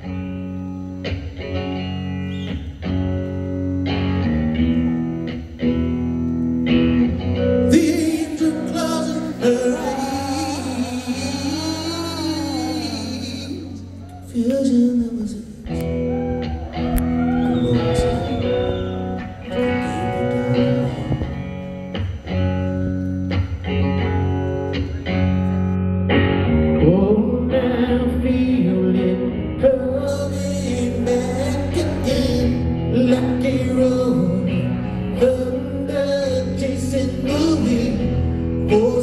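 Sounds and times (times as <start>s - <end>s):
electric guitar chords: 0.0s - 39.0s
live rock band playing: 0.0s - 39.0s
male singer: 7.6s - 15.9s, 26.8s - 39.0s.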